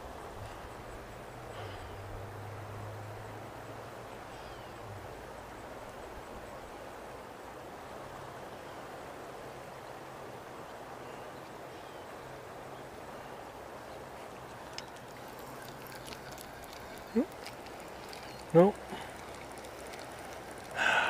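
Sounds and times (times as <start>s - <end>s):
river water flowing: 0.0s - 21.0s
faint clicks: 14.4s - 21.0s.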